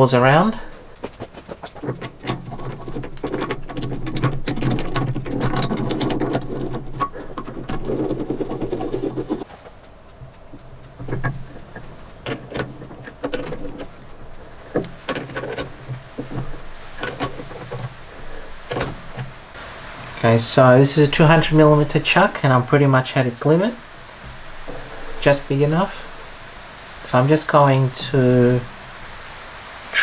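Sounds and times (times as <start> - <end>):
metal clicks and knocks: 1.0 - 19.5.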